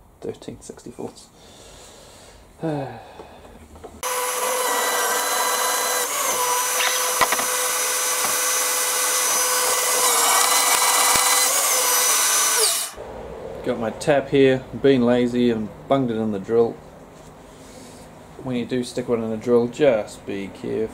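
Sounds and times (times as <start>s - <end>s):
drill press motor whine: 4.0s - 13.0s.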